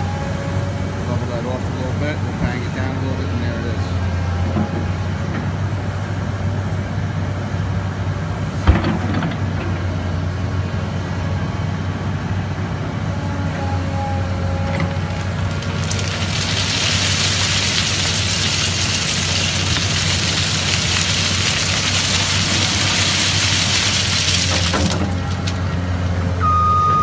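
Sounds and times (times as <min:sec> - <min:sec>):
excavator diesel engine running: 0:00.0 - 0:27.0
gravel pouring from bucket: 0:14.9 - 0:25.7.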